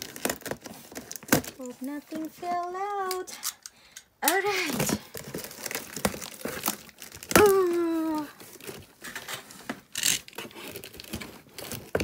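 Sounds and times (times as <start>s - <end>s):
packing tape and cardboard tearing: 0.0s - 2.3s, 4.2s - 12.0s
person exclaiming: 7.3s - 8.4s.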